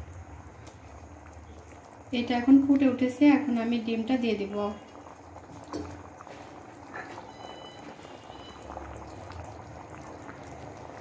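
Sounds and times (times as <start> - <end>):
thick curry bubbling: 0.0 - 11.0.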